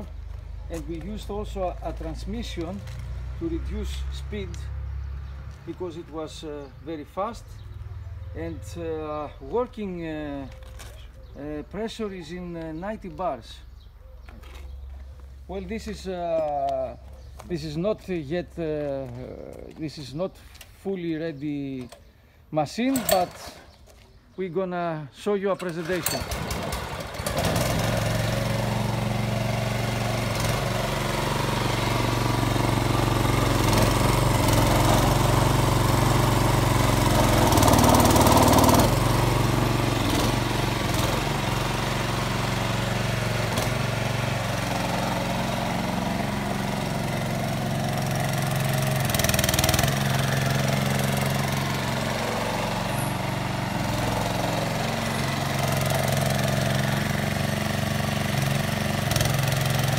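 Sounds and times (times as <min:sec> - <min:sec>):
petrol engine running: 0:22.9 - 0:23.5, 0:25.6 - 0:59.9.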